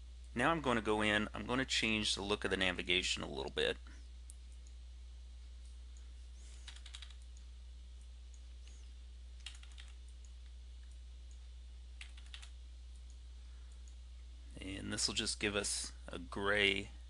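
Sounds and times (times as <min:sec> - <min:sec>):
low electrical hum: 0:00.0 - 0:17.0
computer keyboard typing: 0:06.5 - 0:07.4, 0:09.4 - 0:11.0, 0:12.0 - 0:13.2.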